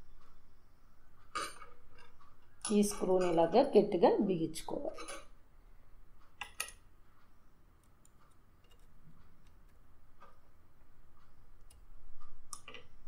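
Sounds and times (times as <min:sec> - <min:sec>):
small metal clicks: 0:06.2 - 0:06.8, 0:07.8 - 0:10.4, 0:11.2 - 0:13.0.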